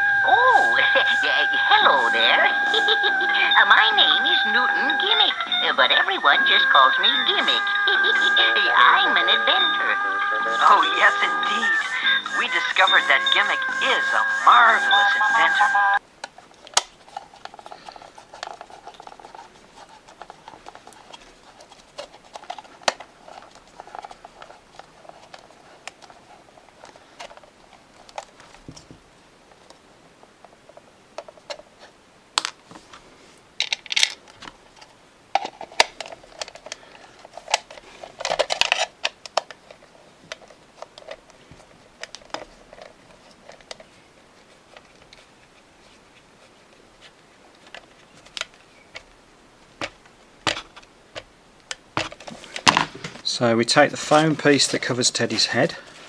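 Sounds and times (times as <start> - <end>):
plastic clicks scrapes and creaks: 16.2 - 28.6, 33.6 - 44.0, 47.0 - 49.1.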